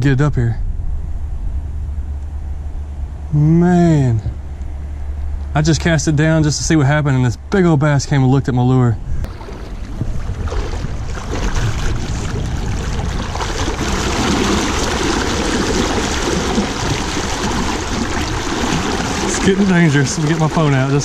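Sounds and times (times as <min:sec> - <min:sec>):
legs wading through water: 0:09.2 - 0:21.0
river current rushing: 0:09.3 - 0:21.0.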